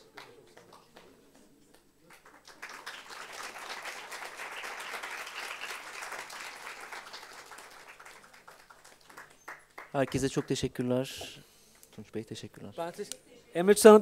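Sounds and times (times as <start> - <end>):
audience applauding: 0.0 - 10.7.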